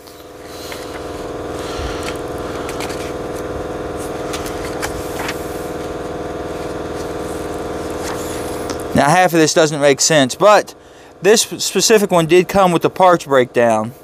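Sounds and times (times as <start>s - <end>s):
air compressor humming: 0.0s - 14.0s
pages rustling: 0.1s - 8.9s.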